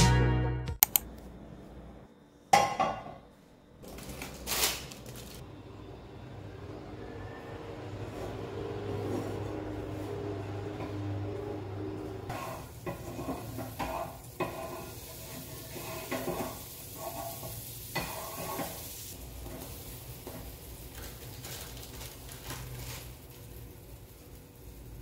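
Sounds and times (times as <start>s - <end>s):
wooden spatula scraping a pan: 12.0s - 18.9s
butter sizzling in a frying pan: 12.3s - 25.0s.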